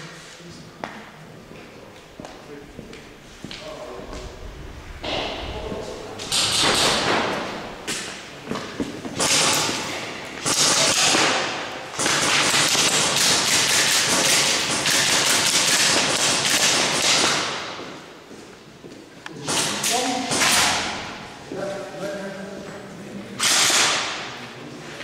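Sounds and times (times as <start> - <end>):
airsoft guns firing: 6.2 - 8.2, 9.1 - 17.8, 19.5 - 21.1, 23.4 - 24.3.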